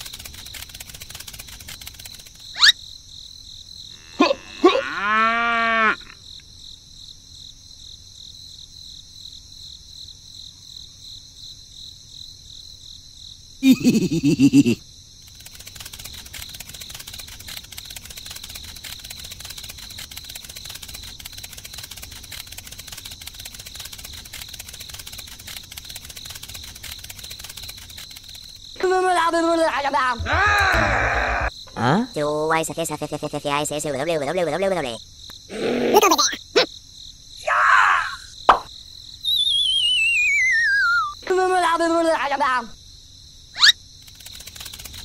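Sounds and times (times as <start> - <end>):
crickets chirring: 0.0 - 45.0
cow mooing: 30.2 - 31.5.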